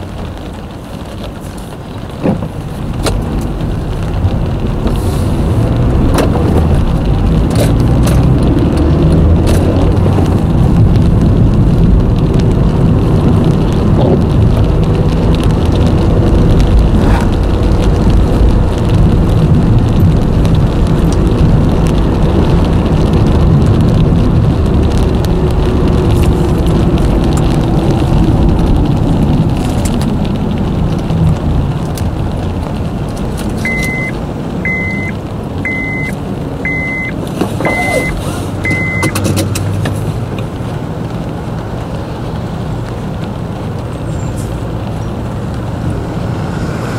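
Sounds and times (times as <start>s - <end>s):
light rain taps: 0.0s - 46.3s
engine and tyre rumble: 0.0s - 46.9s
short electronic beep: 33.7s - 35.1s, 35.7s - 36.1s, 36.7s - 37.1s, 37.7s - 39.1s.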